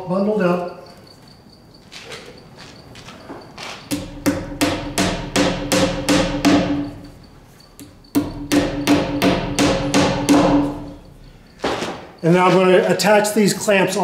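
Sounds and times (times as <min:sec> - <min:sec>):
hammer striking nails into wood: 0:03.9 - 0:07.0, 0:07.8 - 0:11.0.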